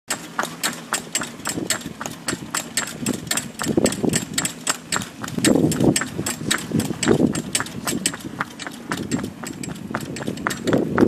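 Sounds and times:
hooves clip-clopping on tarmac: 0.1 - 11.0
low rumble: 1.4 - 11.0.

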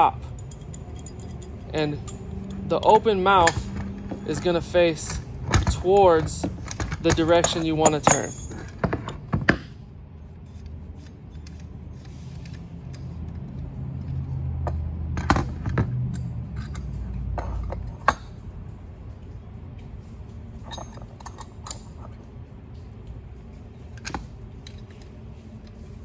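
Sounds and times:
metal fittings clinking: 0.0 - 9.2.

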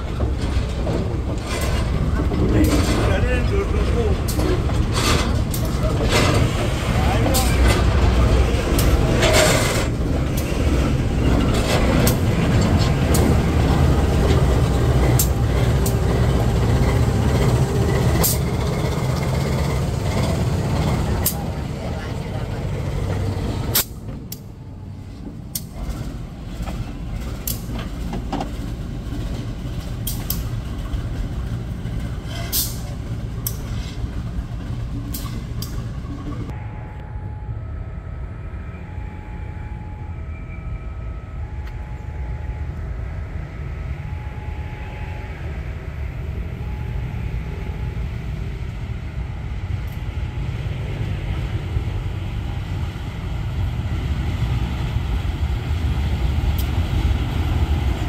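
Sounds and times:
wheels clicking over rail joints: 0.0 - 36.5
train rumbling past: 0.0 - 58.0.

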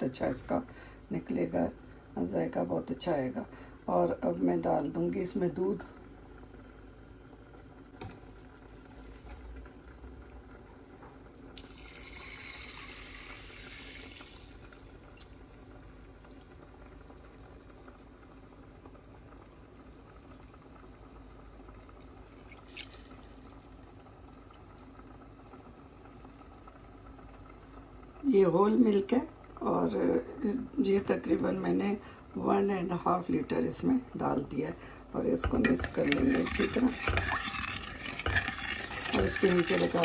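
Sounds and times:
milk pouring into a metal pot: 11.2 - 20.8, 21.6 - 26.8, 35.4 - 40.0.

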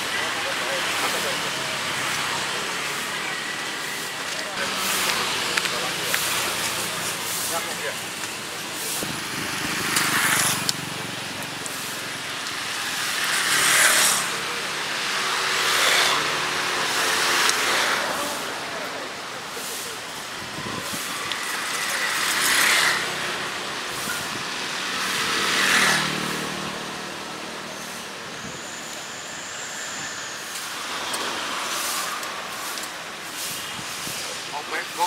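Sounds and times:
off-road vehicle engines revving: 0.0 - 35.0
rushing hiss: 27.8 - 35.0.

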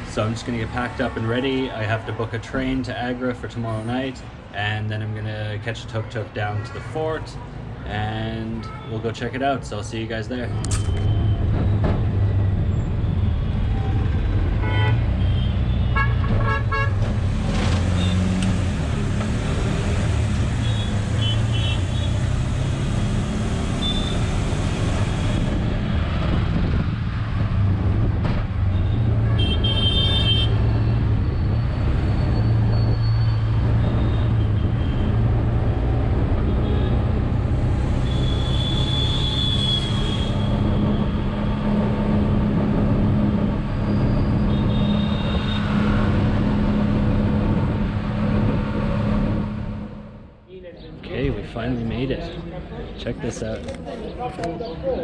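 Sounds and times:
vehicle horns tooting: 14.6 - 17.0, 20.6 - 22.2, 23.8 - 24.3, 28.8 - 30.8, 38.0 - 40.7, 44.4 - 45.7.

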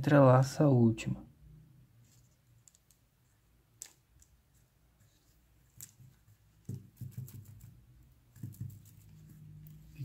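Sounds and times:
dull bumps from handling beadwork: 5.6 - 9.7.

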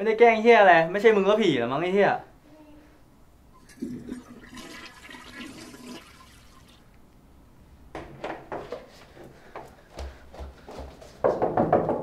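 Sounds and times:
toilet flushing: 3.6 - 6.8.

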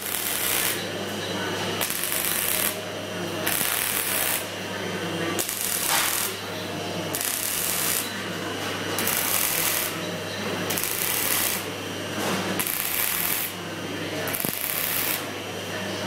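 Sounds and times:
welding arc crackling and hissing: 0.0 - 0.9, 1.8 - 2.8, 3.4 - 4.5, 5.4 - 8.1, 9.0 - 10.0, 10.7 - 11.7, 12.6 - 13.6, 14.3 - 15.4.

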